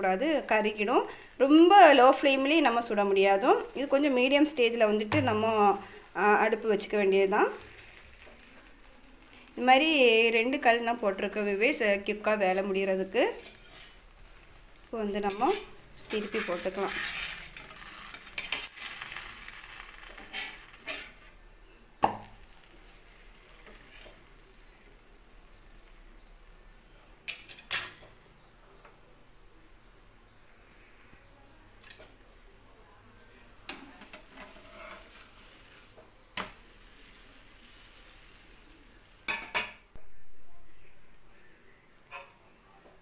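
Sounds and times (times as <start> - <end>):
faint sizzle: 0.0 - 43.0
metal spatula scraping griddle: 13.3 - 14.6, 15.3 - 21.4, 22.8 - 24.3, 34.0 - 36.0, 42.1 - 42.4.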